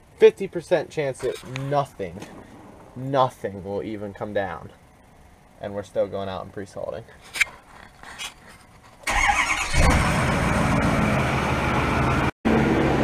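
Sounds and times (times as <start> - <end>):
truck engine cranking and idling: 9.0 - 13.0.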